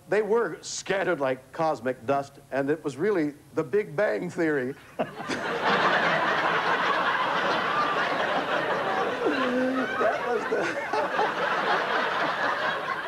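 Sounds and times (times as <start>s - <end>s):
audience laughing: 4.9s - 13.0s.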